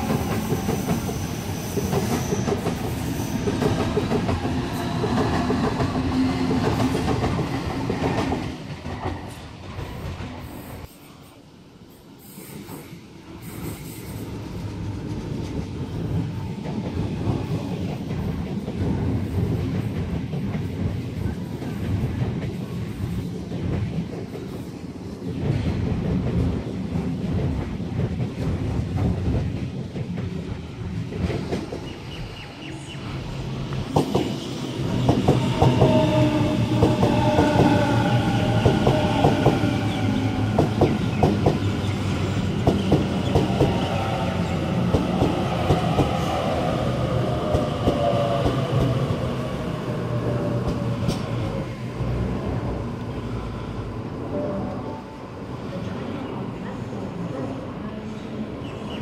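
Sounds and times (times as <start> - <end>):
train rumble: 12.4 - 59.0.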